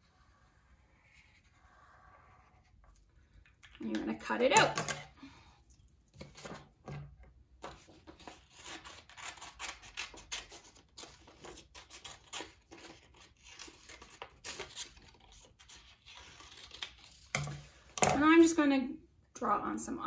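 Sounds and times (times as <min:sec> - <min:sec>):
scissors cutting paper: 0:07.8 - 0:17.4.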